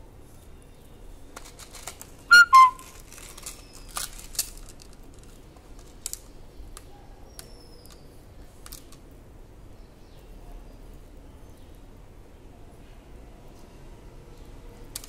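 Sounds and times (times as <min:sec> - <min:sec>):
jewellery and packaging clicks: 0:01.4 - 0:06.4, 0:08.6 - 0:09.0
whistle-like chirps: 0:02.3 - 0:02.8.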